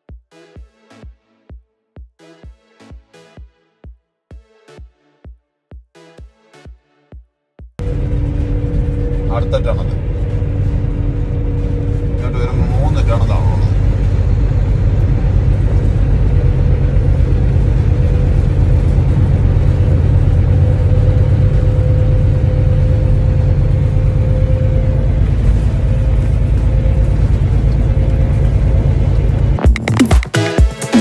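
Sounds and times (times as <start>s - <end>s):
thin steady whine: 7.8s - 29.6s
truck engine and road rumble: 7.8s - 30.6s.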